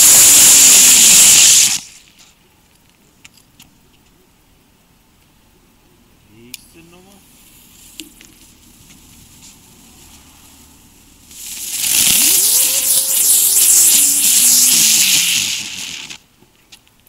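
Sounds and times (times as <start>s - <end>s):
firework spinner hissing: 0.0s - 2.3s, 7.2s - 16.2s
firework whine: 0.0s - 2.3s, 7.2s - 16.3s.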